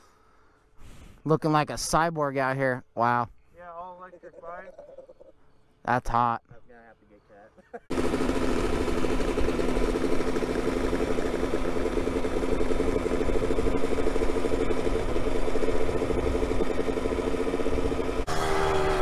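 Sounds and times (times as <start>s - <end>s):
dirt bike engine idling: 7.6s - 19.0s.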